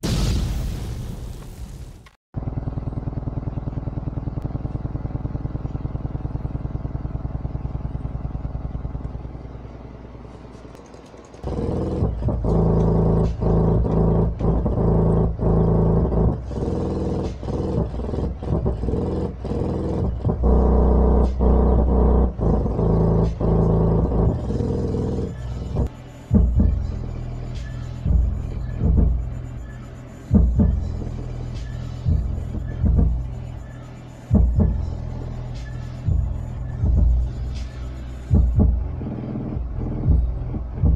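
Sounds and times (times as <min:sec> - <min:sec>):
low bass drone: 0:02.4 - 0:10.5, 0:11.4 - 0:40.9
bass-heavy music with beat: 0:11.4 - 0:40.9.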